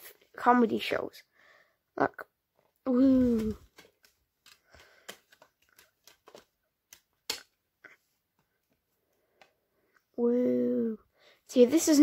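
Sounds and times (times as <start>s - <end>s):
plastic case clicks and rustles: 3.6s - 7.6s.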